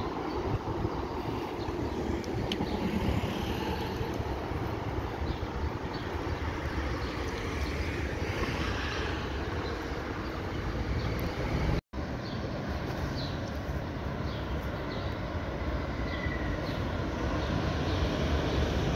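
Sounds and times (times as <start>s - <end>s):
city traffic noise: 0.0s - 18.9s
train rumbling: 1.7s - 5.7s.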